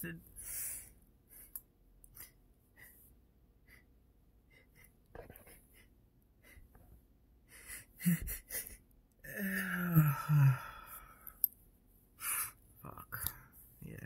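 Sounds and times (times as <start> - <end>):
man sniffing and breathing: 0.4 - 3.9, 7.4 - 8.8.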